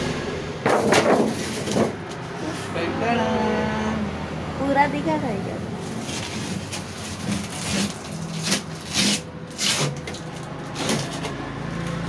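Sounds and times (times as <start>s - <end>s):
fridge doors scraping and knocking: 0.7s - 2.1s, 5.8s - 11.4s.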